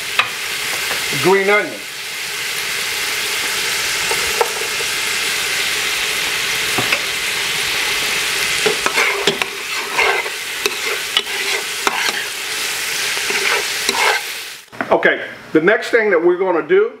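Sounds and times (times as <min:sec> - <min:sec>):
food sizzling in oil: 0:00.0 - 0:14.7
metal spoon scraping a pot: 0:08.6 - 0:12.4, 0:13.2 - 0:14.3.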